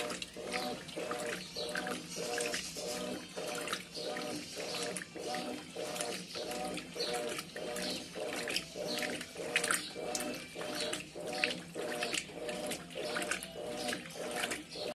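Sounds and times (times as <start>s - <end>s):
washing machine motor humming: 0.0s - 14.9s
water sloshing: 0.0s - 14.9s.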